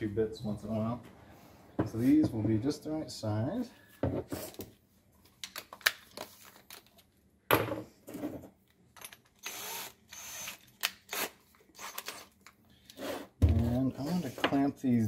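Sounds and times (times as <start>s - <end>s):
drill motor running: 9.4s - 12.0s.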